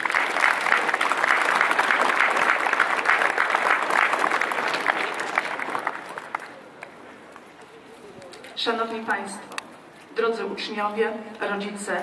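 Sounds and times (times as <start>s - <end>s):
crowd applauding: 0.0s - 7.0s.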